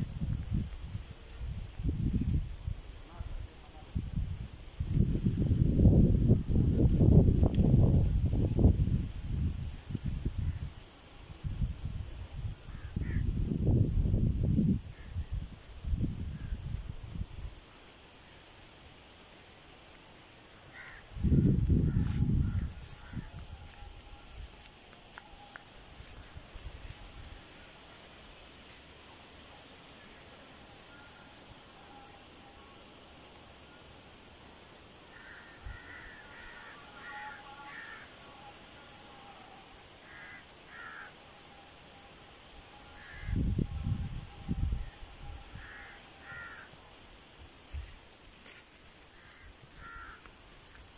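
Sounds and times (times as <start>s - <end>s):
insects trilling: 0.0s - 50.9s
crow cawing: 12.7s - 13.2s, 20.7s - 21.1s, 21.9s - 23.4s, 35.1s - 38.1s, 40.0s - 41.2s, 43.0s - 43.4s, 45.6s - 46.7s, 49.1s - 50.3s.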